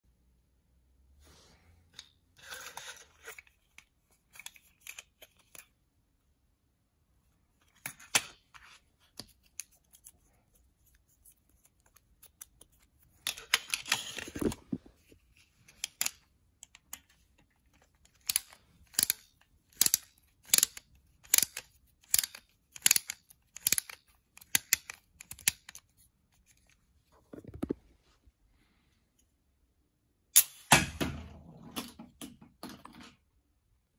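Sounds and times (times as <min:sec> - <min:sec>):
plastic toy clicks: 0:18.0 - 0:25.8
toy rattle: 0:18.1 - 0:25.8.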